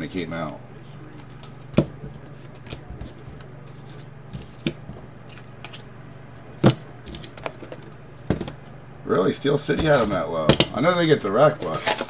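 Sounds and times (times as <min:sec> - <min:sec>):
steady low hum: 0:00.0 - 0:12.0
cards rustling and crackling: 0:00.4 - 0:08.6, 0:10.8 - 0:12.0.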